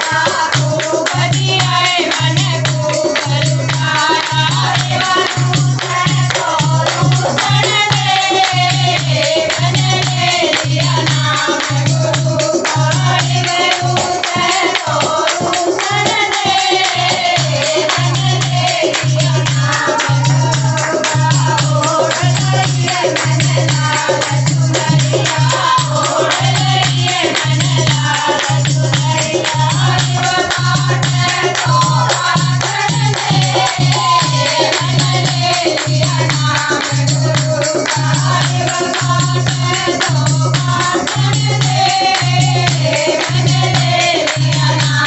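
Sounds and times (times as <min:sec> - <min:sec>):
hand-clapping: 0:00.0 - 0:45.0
jingling rattle percussion: 0:00.0 - 0:45.0
women singing together: 0:00.0 - 0:45.0.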